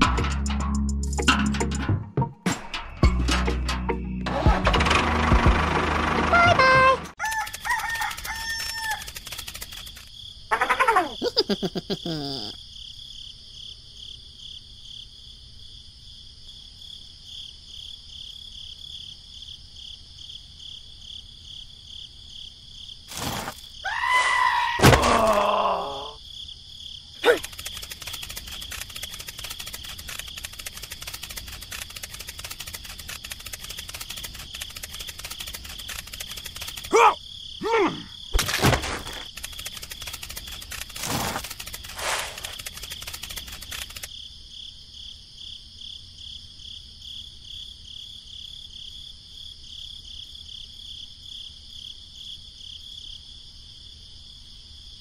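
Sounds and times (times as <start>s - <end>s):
sharp clicks: 7.3s - 10.1s, 27.2s - 37.1s, 38.4s - 44.1s
pitched animal calls: 10.5s - 12.6s, 23.8s - 26.2s.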